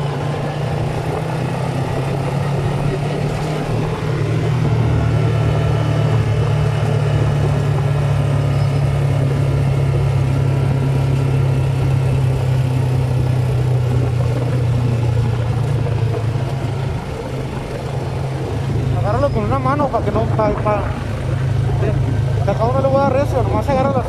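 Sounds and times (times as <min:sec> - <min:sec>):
quad bike engine drone: 0:00.0 - 0:24.0.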